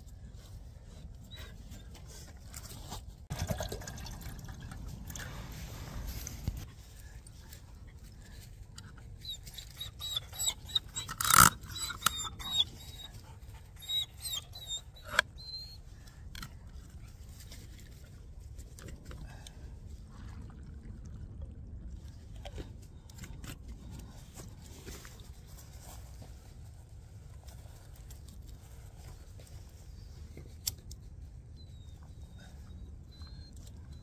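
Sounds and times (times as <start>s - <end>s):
high wavering squeaks: 9.2s - 13.1s, 13.7s - 15.8s.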